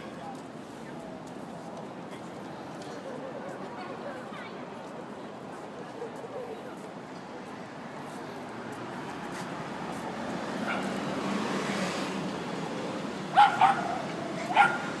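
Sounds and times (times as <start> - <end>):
dog barking: 10.7 - 11.0, 13.3 - 15.0.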